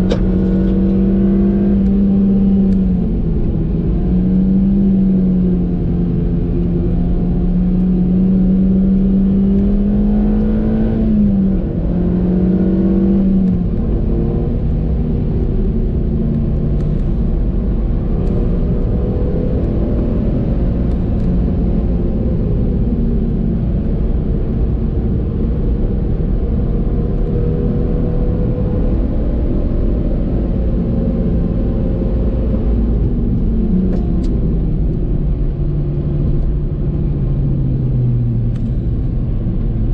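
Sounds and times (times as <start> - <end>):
car engine: 0.0 - 39.9
road and wind noise: 0.0 - 39.9.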